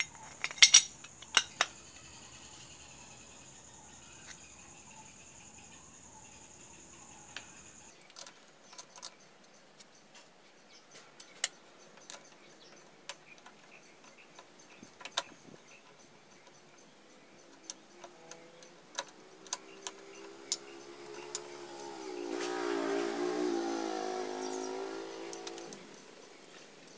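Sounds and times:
metal clutch plates clinking: 0.0 - 2.2.

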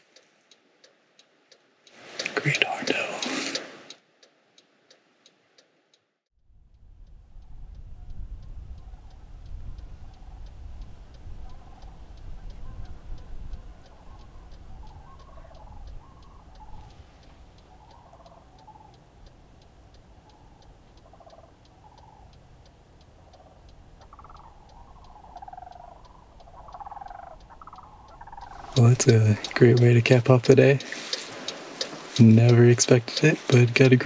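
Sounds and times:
faint even ticking: 6.7 - 34.0
cranes bugling: 11.6 - 33.7.

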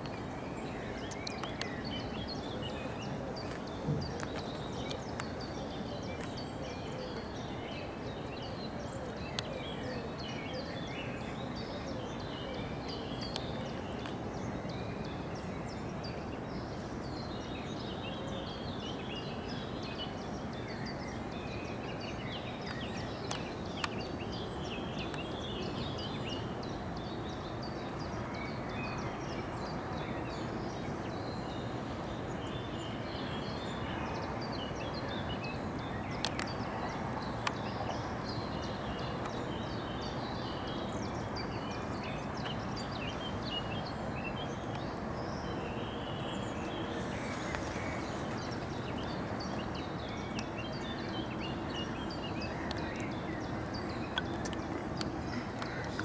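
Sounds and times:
small birds chirping: 0.0 - 56.0
steady background noise: 0.0 - 56.0
faint sharp clicks: 0.9 - 1.8, 9.3 - 9.5, 22.6 - 24.0, 36.2 - 36.6, 37.4 - 37.7, 52.6 - 53.2, 54.1 - 56.0.

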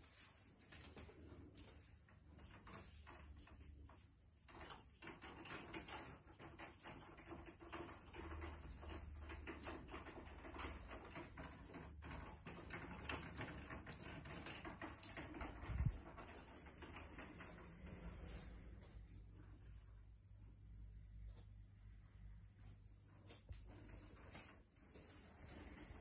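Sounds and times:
low steady hum: 14.8 - 26.0.

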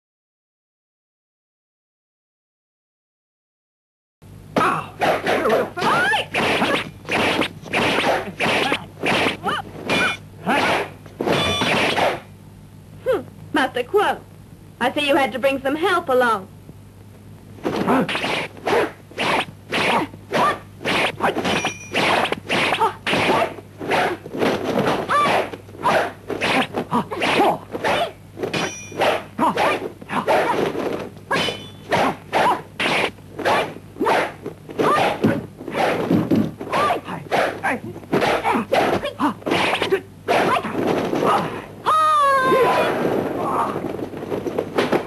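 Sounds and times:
punch and kick smacks: 4.6 - 12.2.

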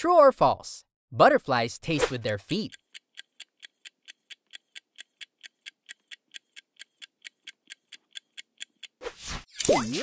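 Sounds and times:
clock-like timer ticks: 1.4 - 9.0.

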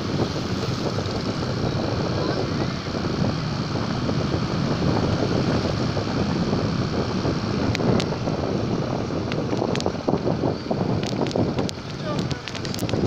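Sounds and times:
motorbike road and engine noise: 0.0 - 13.0
wind rushing over microphone: 0.0 - 13.0
sharp clicks: 11.0 - 13.0.

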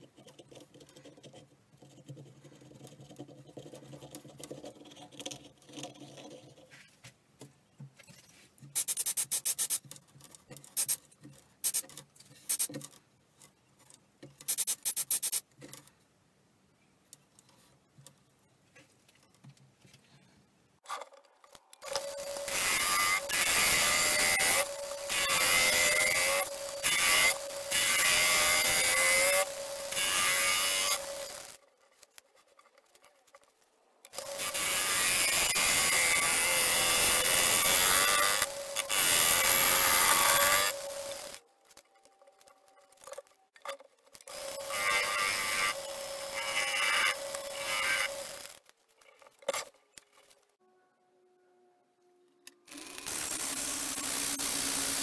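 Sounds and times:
wood lathe hum: 21.9 - 31.6.

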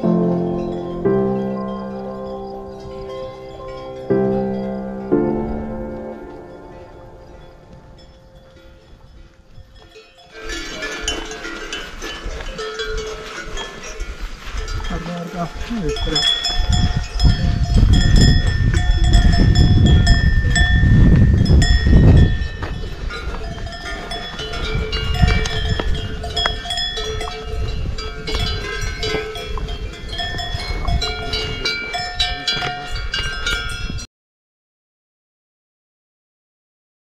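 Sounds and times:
cowbells clanking: 0.0 - 34.1.

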